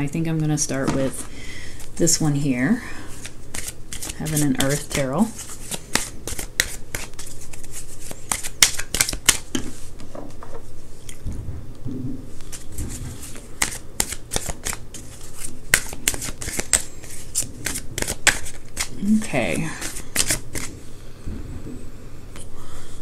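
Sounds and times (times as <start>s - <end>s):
cards being shuffled: 3.1s - 10.2s, 12.4s - 19.1s, 19.8s - 20.8s.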